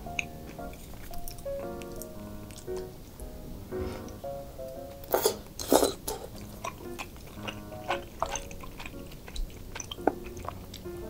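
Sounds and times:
soft background music: 0.0s - 11.0s
wet chewing and mouth smacks: 0.1s - 2.9s, 4.9s - 10.9s
slurping noodles: 5.1s - 10.6s.

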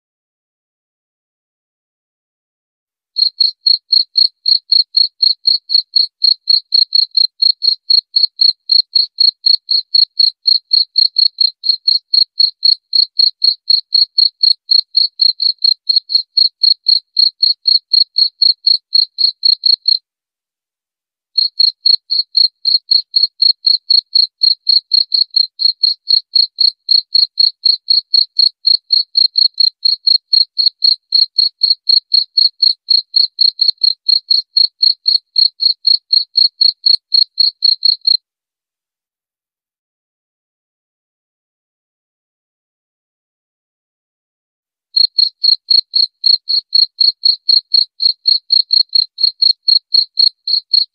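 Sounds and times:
cricket chirping: 3.2s - 20.0s, 21.4s - 38.2s, 45.0s - 50.9s.

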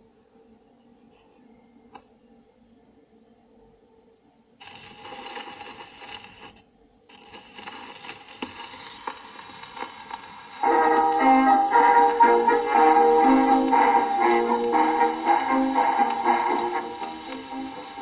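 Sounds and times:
record surface hiss: 0.0s - 18.0s
record clicks and ticks: 4.6s - 18.0s.

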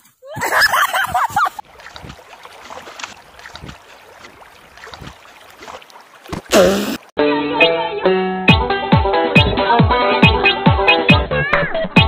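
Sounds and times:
water splashing and trickling: 0.0s - 7.2s.

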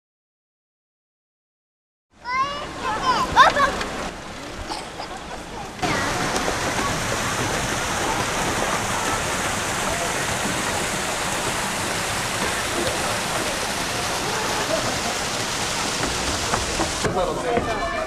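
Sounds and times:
voices of people playing: 2.2s - 11.4s, 12.4s - 18.0s
steady rushing noise: 5.5s - 17.1s.

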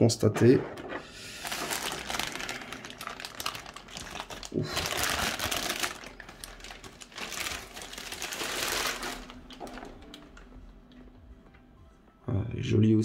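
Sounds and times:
plastic packaging crinkling: 1.2s - 10.6s.

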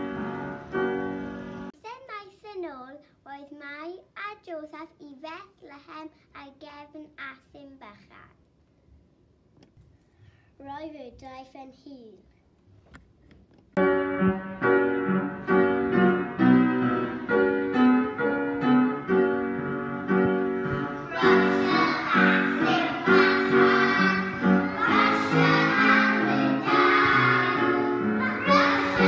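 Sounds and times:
piano accompaniment: 0.0s - 1.8s, 13.8s - 29.0s
children singing: 21.0s - 29.0s.

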